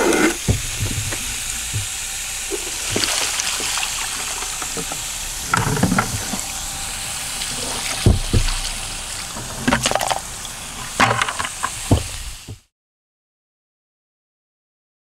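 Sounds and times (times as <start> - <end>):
water splashing from a bucket: 0.0 - 12.6
hollow plastic knocks: 0.2 - 3.1, 7.9 - 8.7, 11.0 - 12.6.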